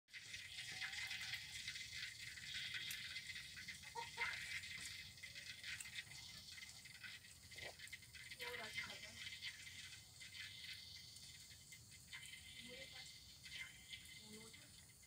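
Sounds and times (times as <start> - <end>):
cat chewing and licking: 0.4 - 12.5.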